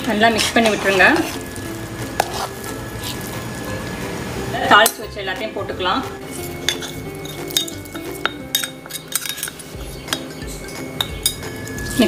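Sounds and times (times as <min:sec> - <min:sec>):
steel spoon clinking on metal pan: 0:04.7 - 0:05.2, 0:06.4 - 0:12.0.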